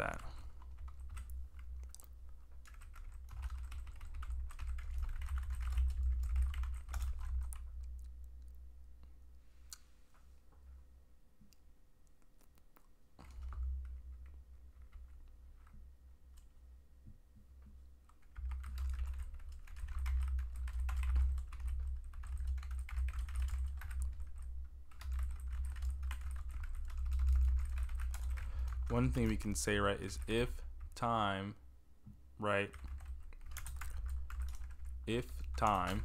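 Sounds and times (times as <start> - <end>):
typing on computer keyboard: 0.0 - 8.2, 12.4 - 16.5, 18.0 - 31.0, 32.7 - 36.0.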